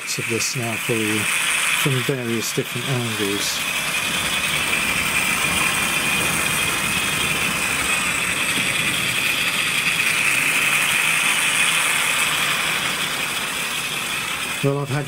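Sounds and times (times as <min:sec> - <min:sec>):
model locomotive whirring: 0:00.0 - 0:15.0.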